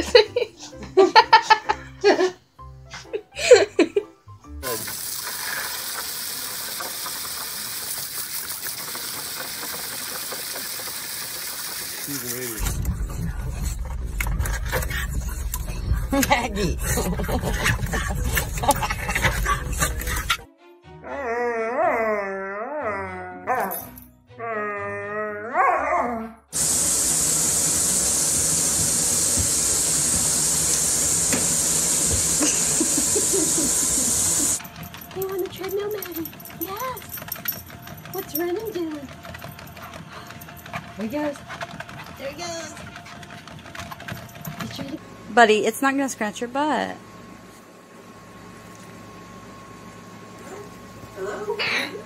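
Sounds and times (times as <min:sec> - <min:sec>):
water spraying from spout: 0:04.6 - 0:12.6, 0:26.6 - 0:34.6
dog howling: 0:21.0 - 0:23.7, 0:24.4 - 0:26.4.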